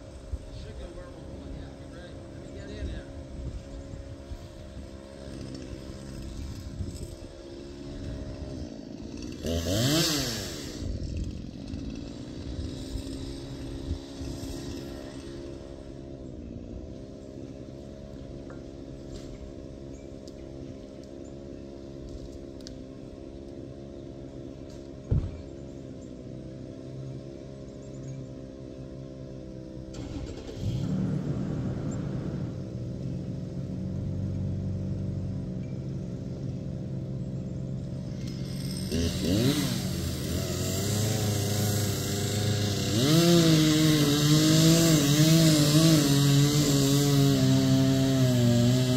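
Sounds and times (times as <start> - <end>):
chainsaw revving: 0.0 - 48.9.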